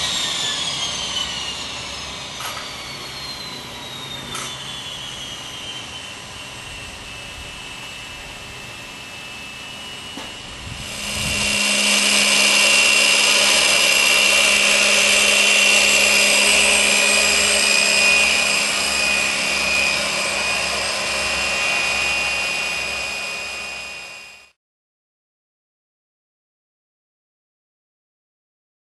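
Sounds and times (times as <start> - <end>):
high-pitched starter motor whine: 0.0 - 24.6.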